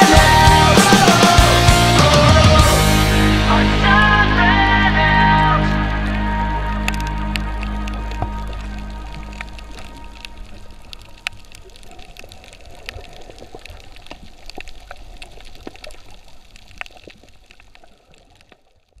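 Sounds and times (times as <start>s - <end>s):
underwater rush of water: 0.0s - 19.0s
sharp underwater clicks and crackles: 6.1s - 19.0s.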